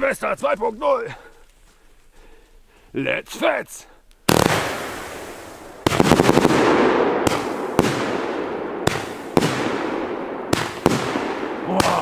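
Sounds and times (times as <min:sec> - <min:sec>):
firework crackle: 0:04.3 - 0:09.8
firework launch: 0:04.3 - 0:09.9
sharp firework bangs: 0:04.3 - 0:12.0.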